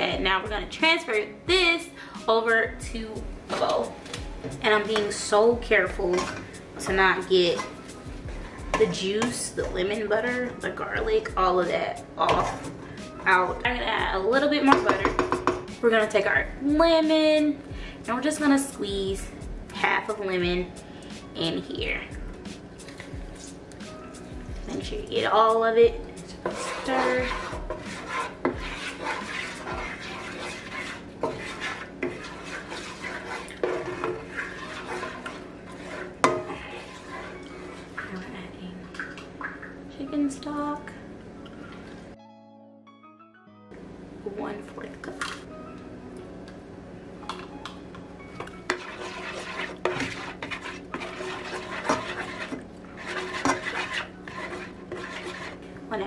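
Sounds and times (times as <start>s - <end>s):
spoon scraping a skillet: 4.7s - 10.8s, 26.2s - 38.2s, 48.4s - 55.8s
spoon knocking against pan: 14.7s - 15.7s.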